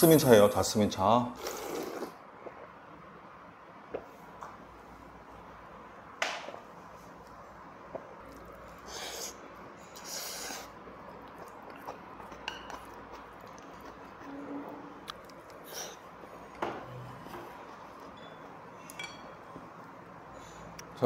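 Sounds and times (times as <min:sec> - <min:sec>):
slurping noodles: 0:01.4 - 0:02.2, 0:08.8 - 0:10.8.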